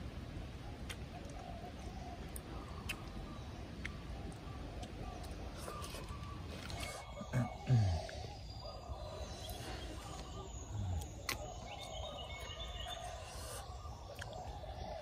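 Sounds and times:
forest background noise: 0.0 - 15.0
man making low mm sounds: 7.1 - 8.3.

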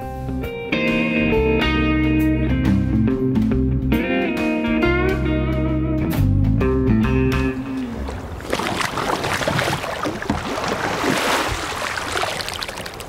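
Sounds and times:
guitar-led background music: 0.0 - 8.1.

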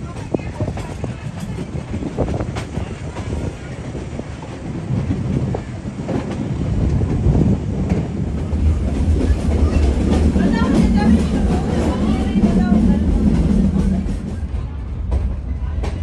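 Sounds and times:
train wheels clicking and clattering: 0.0 - 16.0
train wheels rumbling: 0.0 - 16.0.

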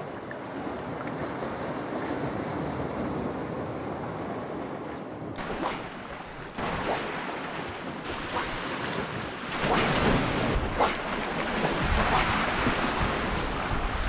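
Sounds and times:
wind buffeting microphone: 0.6 - 14.0
waves splashing on rocks: 5.4 - 14.0.

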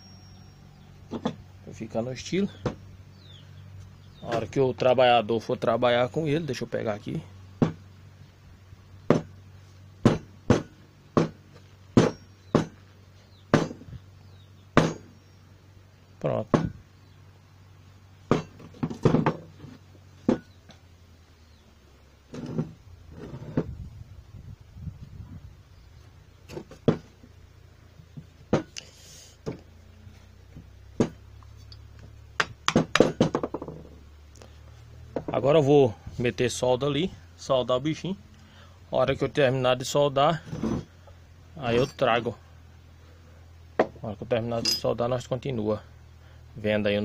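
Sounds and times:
hammer knocking on wooden workbench: 9.1 - 9.3, 10.0 - 11.4, 12.0 - 12.8, 13.5 - 13.9, 16.5 - 16.8, 32.4 - 33.9.

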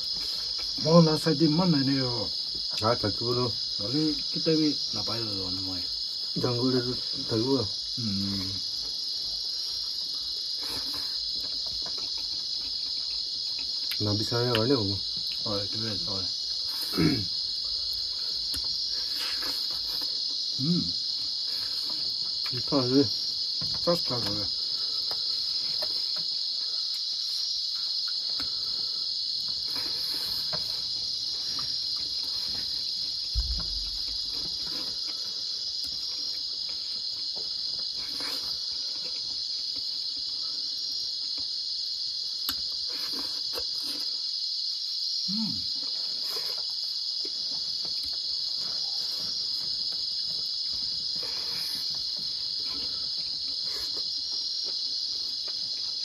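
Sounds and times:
faint eating sounds: 0.0 - 56.0
insects chirping: 0.0 - 56.0
low thump: 33.3 - 34.1.

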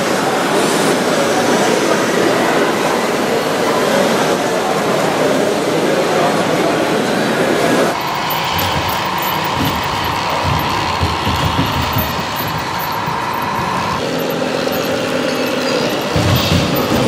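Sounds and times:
high motor whine: 8.0 - 17.0.

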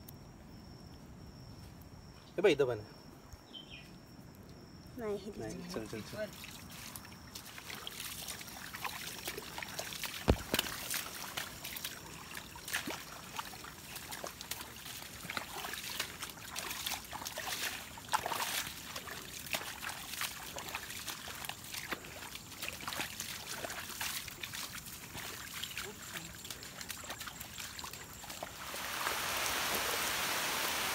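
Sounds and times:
footsteps squelching in mud: 6.2 - 28.6.

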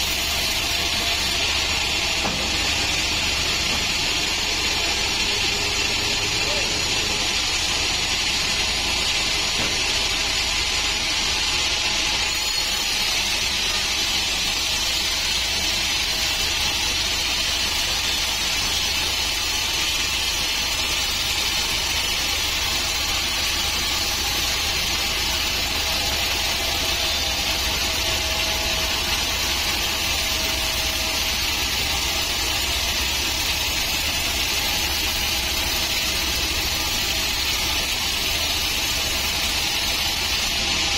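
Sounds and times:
low hum of saw drive: 0.0 - 6.1
band saw cutting log: 0.0 - 40.9.

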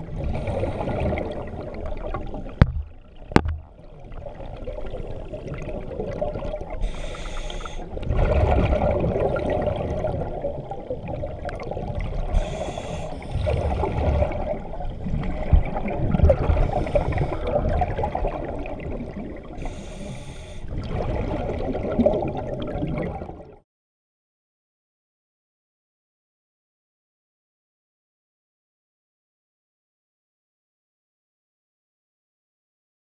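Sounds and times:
hissing breaths through regulator: 6.8 - 7.9, 12.3 - 13.6, 16.6 - 17.6, 19.6 - 20.8.

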